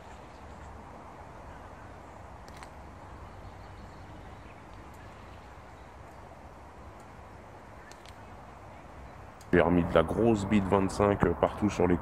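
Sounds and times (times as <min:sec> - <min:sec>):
outdoor background noise: 0:00.0 - 0:12.0
faint light clicks: 0:02.4 - 0:02.8, 0:04.6 - 0:05.3, 0:07.8 - 0:08.3.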